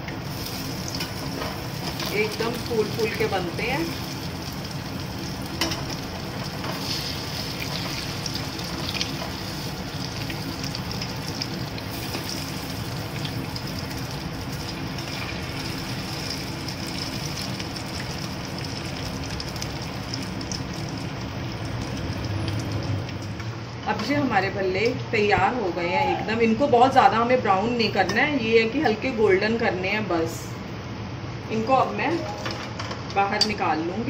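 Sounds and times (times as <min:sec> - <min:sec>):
food deep-frying in oil: 0:00.0 - 0:26.2.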